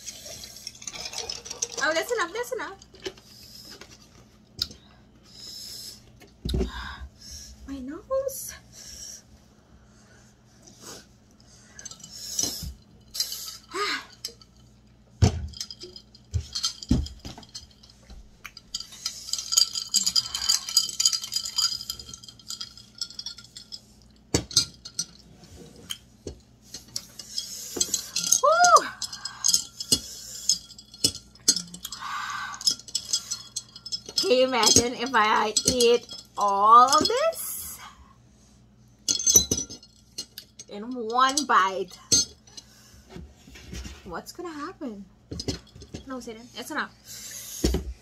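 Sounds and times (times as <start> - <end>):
glass and dishes clinking: 15.2 - 17.9, 18.5 - 25.2, 27.2 - 37.3, 39.1 - 40.6.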